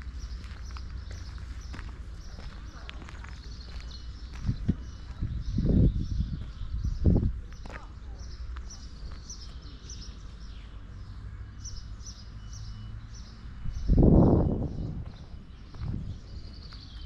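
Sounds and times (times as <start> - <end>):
small birds chirping: 0.0 - 17.0
low rumble: 13.7 - 16.6.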